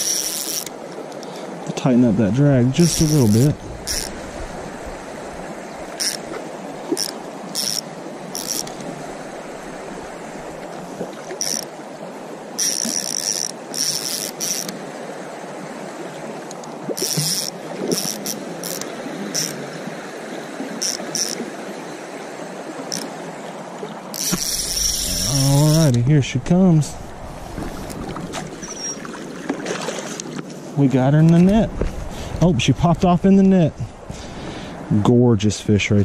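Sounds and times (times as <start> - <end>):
fishing reel whirring: 0.0 - 1.3, 2.8 - 4.8, 5.8 - 8.9, 11.2 - 11.7, 12.6 - 14.8, 17.0 - 19.7, 20.8 - 21.5, 22.9 - 23.2, 24.1 - 26.0
stream flowing: 0.0 - 36.0.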